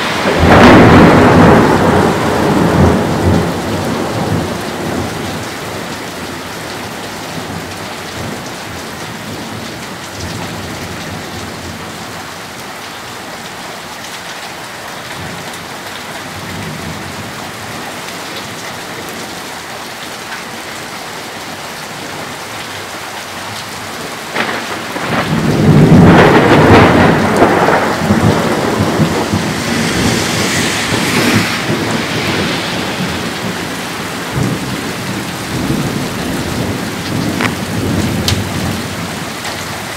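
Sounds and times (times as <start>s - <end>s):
thunder clap rumbling: 0.0s - 6.0s, 24.3s - 39.9s
steady rain: 0.0s - 39.9s.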